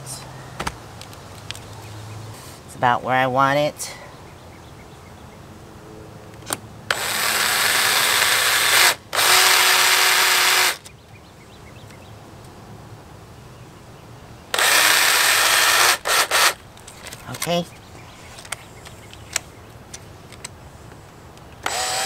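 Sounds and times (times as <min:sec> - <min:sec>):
cordless drill drilling: 0:06.9 - 0:10.9, 0:14.5 - 0:16.6, 0:21.6 - 0:22.0.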